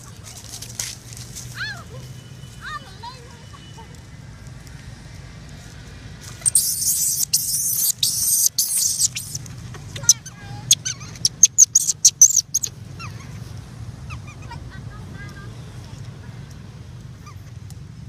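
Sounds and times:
baby monkey squeaking: 6.4s - 9.4s, 10.0s - 13.2s.

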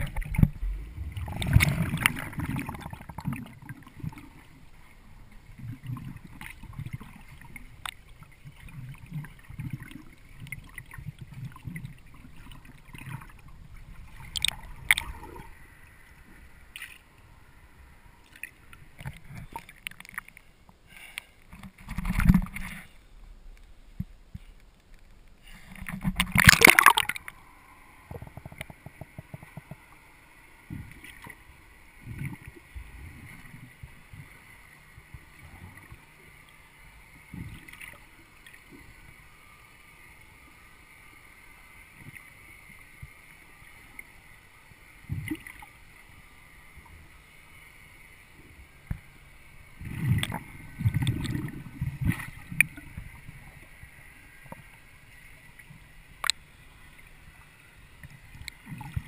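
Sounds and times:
muffled underwater knocks and gurgles: 0.0s - 4.4s, 21.5s - 22.9s, 28.1s - 31.4s, 45.0s - 45.7s, 49.8s - 53.7s
low rumbling thumps: 0.3s - 1.8s
camera splashing into water: 26.2s - 27.3s.

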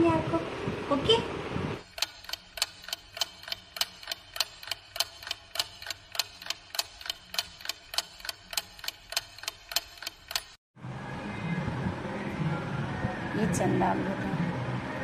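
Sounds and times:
clock ticking: 1.8s - 10.6s.

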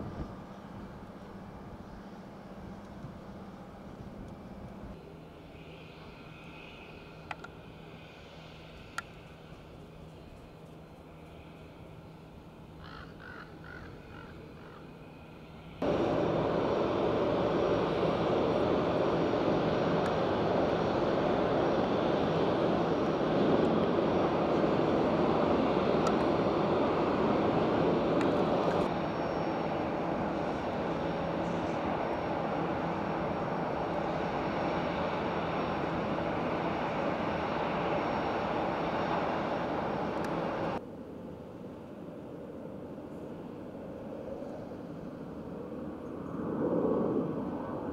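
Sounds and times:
faint high whine: 0.0s - 13.0s, 13.9s - 41.3s
jet engines roaring: 14.4s - 40.8s, 42.1s - 47.9s.

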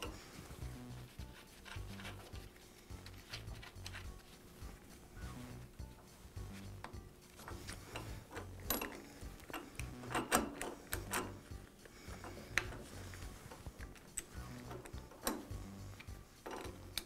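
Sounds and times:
metal clicks and clacks: 6.8s - 11.5s, 13.5s - 15.6s, 16.4s - 17.0s.

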